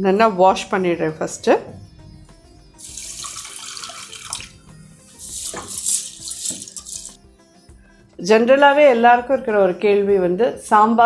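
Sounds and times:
water splashing: 0:02.8 - 0:04.5
water pouring into pot: 0:02.8 - 0:07.2.

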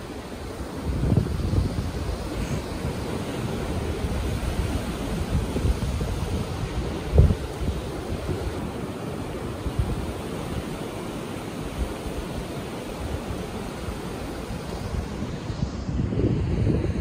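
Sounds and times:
ocean surf washing up: 0:00.0 - 0:17.0
wind buffeting microphone: 0:00.0 - 0:17.0.

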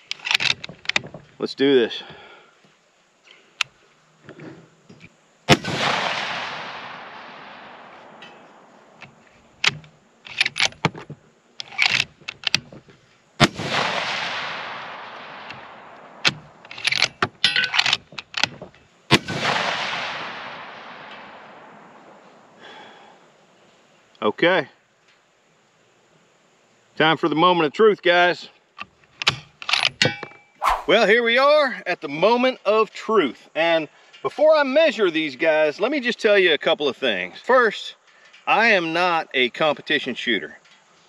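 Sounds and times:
rifle shots: 0:05.5 - 0:08.9, 0:13.4 - 0:17.1, 0:19.1 - 0:22.0.

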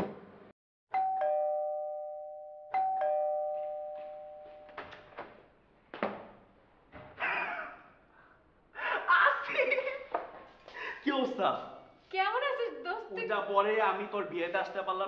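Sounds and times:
two-tone doorbell chiming: 0:00.9 - 0:05.0.

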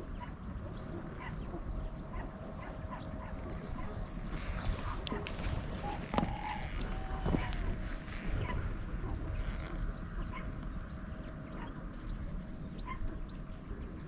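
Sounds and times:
low background noise: 0:00.0 - 0:14.0
dogs yipping: 0:01.1 - 0:01.4, 0:02.1 - 0:10.6, 0:12.8 - 0:13.2.

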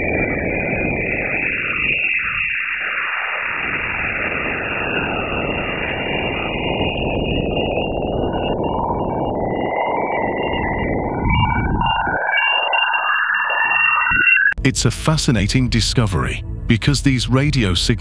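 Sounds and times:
sweeping falling tones: 0:07.7 - 0:17.7.

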